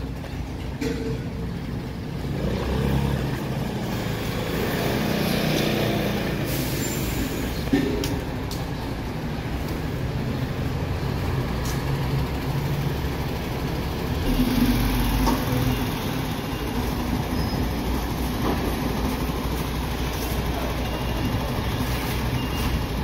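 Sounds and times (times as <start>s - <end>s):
diesel truck engine driving past: 9.9s - 22.1s
heavy low rumble: 14.1s - 20.2s.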